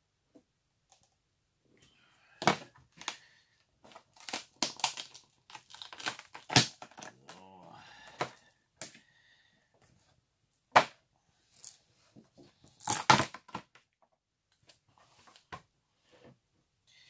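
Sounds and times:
plastic mould cracking: 3.8 - 7.3, 12.8 - 13.9.

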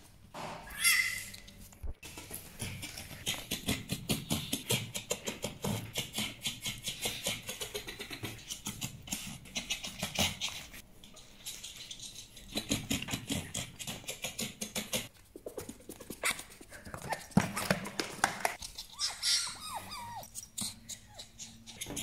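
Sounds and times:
fox whining squeaks: 0.7 - 1.5, 18.6 - 22.0
fox clicking chatter: 0.8 - 17.8, 18.4 - 22.0.

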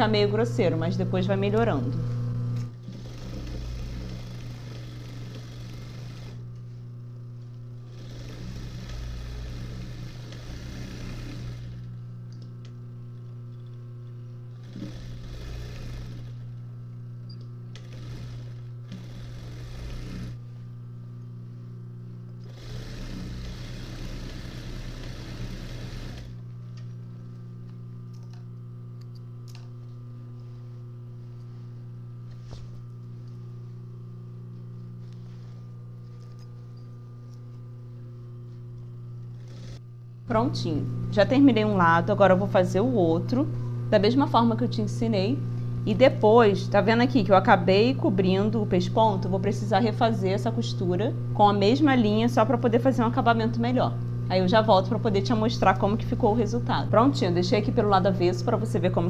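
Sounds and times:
low steady hum: 0.0 - 59.0
sewing machine stitching: 2.7 - 6.4, 7.8 - 11.9, 14.6 - 16.5, 17.7 - 20.4, 22.4 - 26.4, 39.3 - 39.8.

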